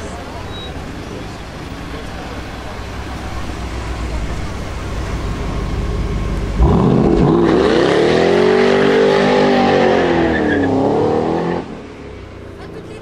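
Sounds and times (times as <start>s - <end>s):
tyres spinning and squealing: 0.0s - 11.6s
car engine revving hard: 4.1s - 11.8s.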